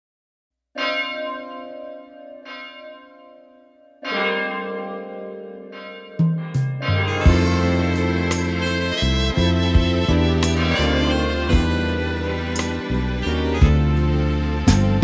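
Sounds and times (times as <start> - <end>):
low instrumental notes: 6.2 - 15.0.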